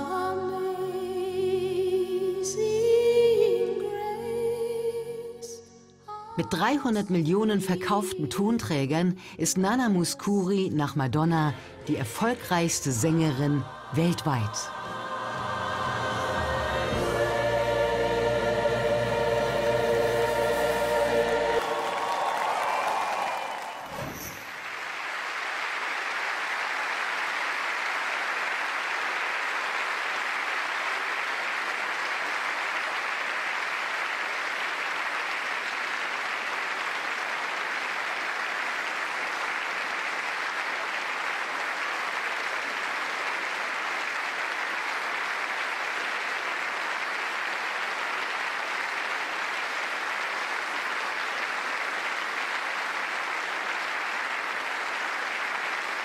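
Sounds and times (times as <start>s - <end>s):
large audience applauding: 13.0s - 56.0s.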